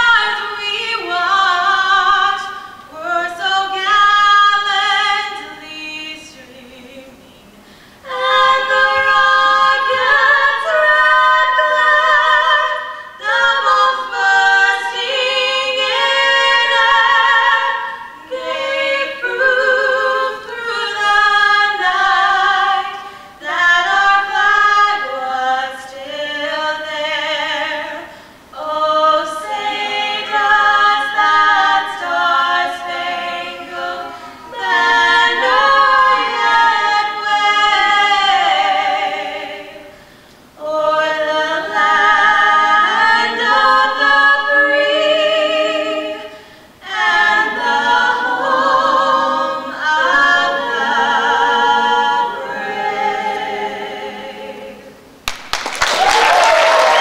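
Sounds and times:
vocal group singing a cappella: 0.0 - 55.2
applause: 55.2 - 57.0.

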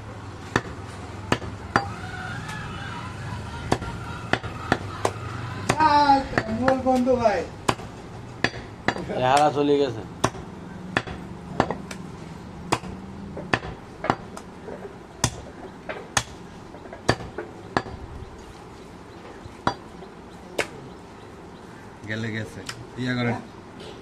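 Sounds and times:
cleaver chopping meat on wood: 0.5 - 1.9, 3.7 - 7.0, 7.6 - 9.0, 11.0 - 12.0, 12.7 - 14.2, 15.2 - 16.4.

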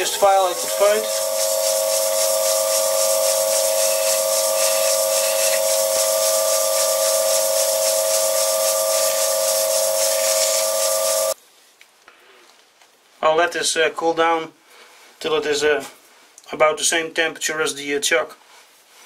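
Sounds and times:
hiss of filing spinning steel: 0.0 - 11.4
lathe whining: 0.0 - 11.4.

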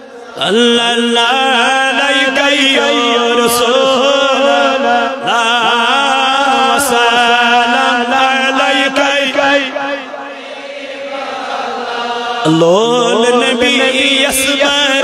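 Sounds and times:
man singing unaccompanied: 0.4 - 10.0, 12.4 - 15.0.

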